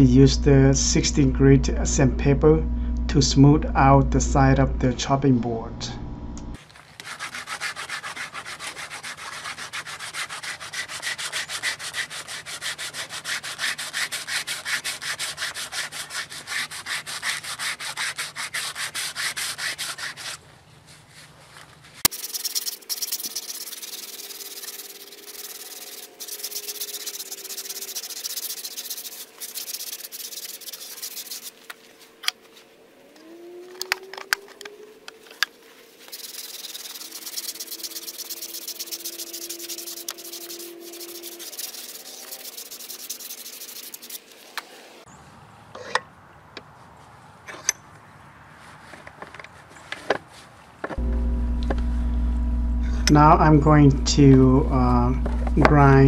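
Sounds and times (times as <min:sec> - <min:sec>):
sandpaper rubbing on wood: 0:06.6 - 0:20.5, 0:22.0 - 0:31.7, 0:35.8 - 0:45.0.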